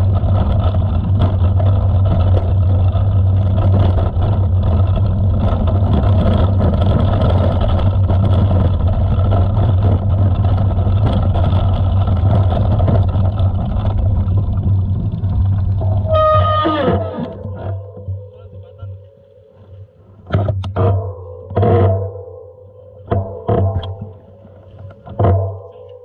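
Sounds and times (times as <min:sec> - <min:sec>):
bike tyres crunching over gravel: 0:00.0 - 0:20.0
wind rumbling on microphone: 0:00.0 - 0:26.0
high squeal falling in pitch: 0:16.0 - 0:19.7.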